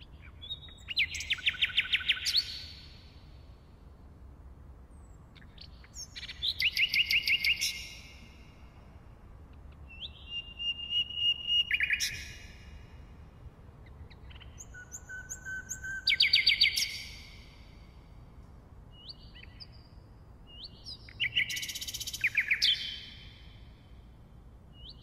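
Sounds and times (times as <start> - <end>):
nightingale singing: 0.0 - 3.2, 5.0 - 8.5, 9.8 - 12.8, 13.8 - 18.0, 18.9 - 24.0, 24.7 - 25.0.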